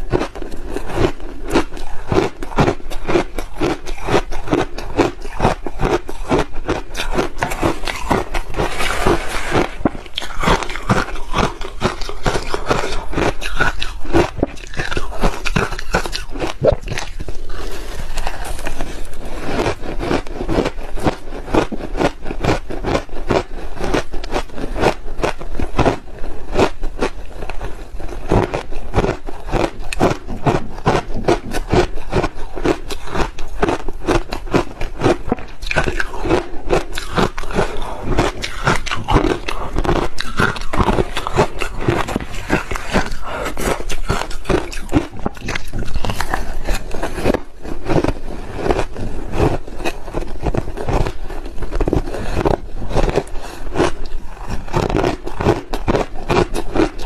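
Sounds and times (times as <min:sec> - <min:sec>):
metal spoon scraping ice: 0:00.0 - 0:21.8
crushed ice crunching when chewed: 0:00.0 - 0:57.0.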